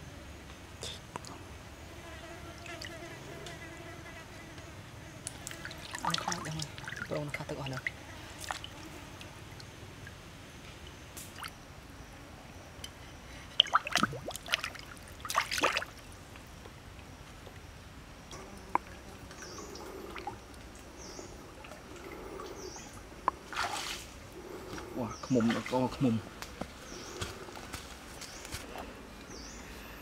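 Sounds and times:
water splashing and dripping: 5.3 - 8.8, 9.5 - 11.6, 13.5 - 17.6, 18.3 - 22.5, 23.2 - 24.2, 25.3 - 26.2.

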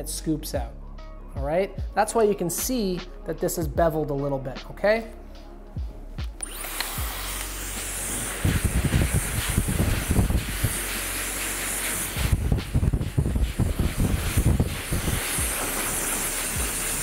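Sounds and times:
hair dryer blowing: 6.2 - 17.0
gusty low rumbling: 12.2 - 15.2.

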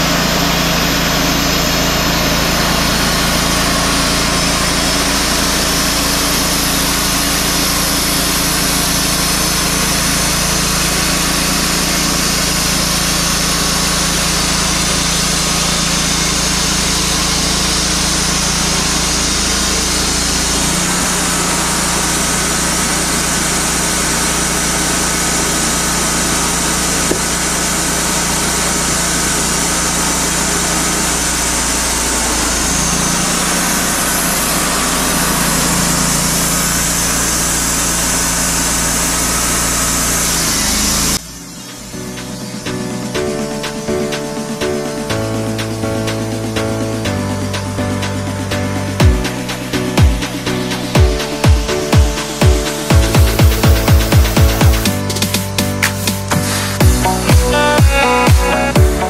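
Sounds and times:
band blade cutting log: 0.0 - 41.2
sawmill engine under load: 0.0 - 59.0.

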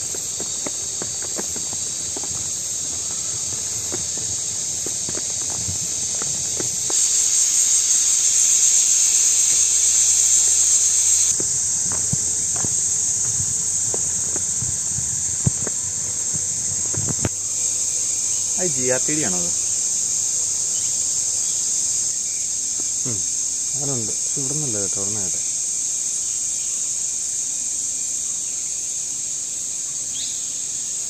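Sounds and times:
footsteps on leafy dirt path: 0.0 - 18.8
insects droning: 0.0 - 31.0.

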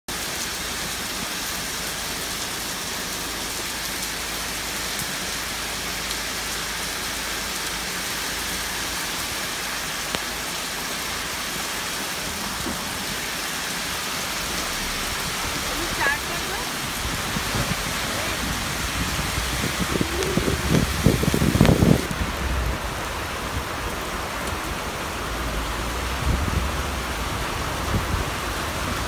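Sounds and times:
heavy rain on pavement and foliage: 0.1 - 29.0.

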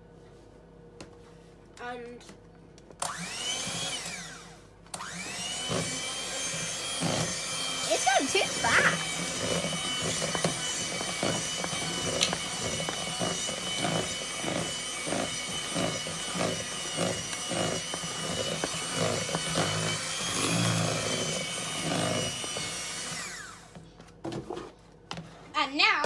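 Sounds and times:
beaters churning batter: 2.8 - 26.0
electric hand mixer whining: 3.0 - 23.8.

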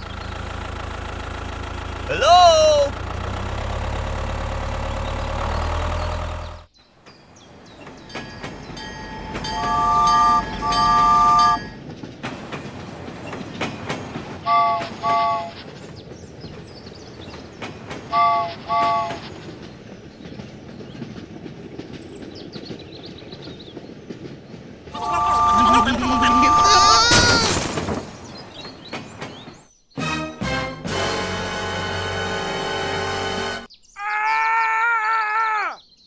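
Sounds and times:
tractor engine running: 0.0 - 6.7, 7.6 - 19.7, 25.0 - 29.4
train rattling: 0.0 - 29.8, 30.8 - 33.7
train horn blasts: 9.2 - 11.8, 14.4 - 15.7, 18.1 - 19.3, 25.0 - 27.0, 30.3 - 33.7.

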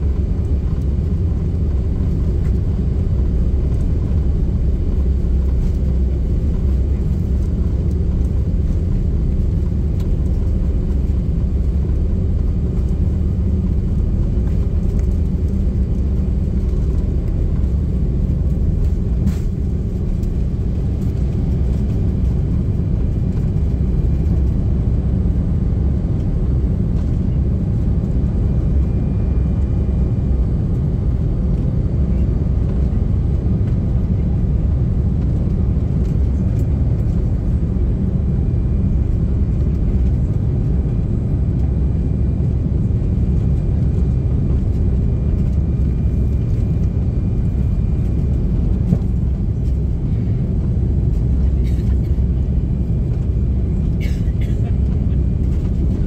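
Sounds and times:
airplane cabin rumble: 0.0 - 56.0.

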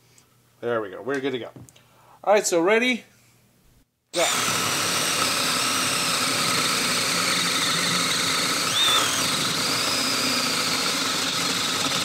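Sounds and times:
drill boring through wood: 4.2 - 12.0.

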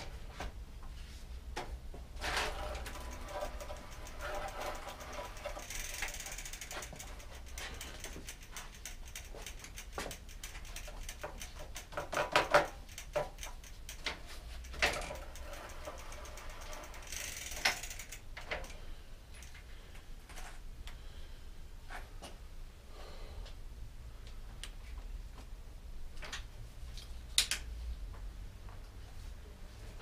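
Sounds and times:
bicycle hub ticking: 2.2 - 18.8.

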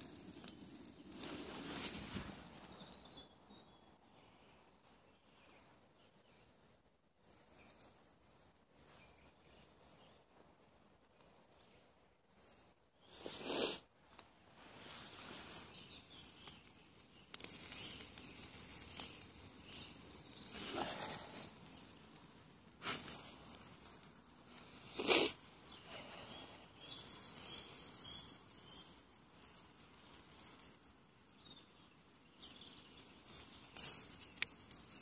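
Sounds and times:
bacon sizzling on a grill: 15.0 - 35.0.

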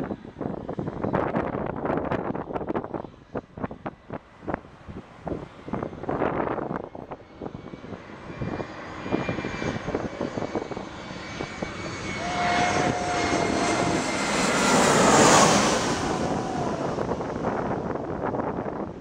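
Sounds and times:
jet airliner passing overhead: 0.0 - 19.0
whining engine tone: 8.5 - 18.0.

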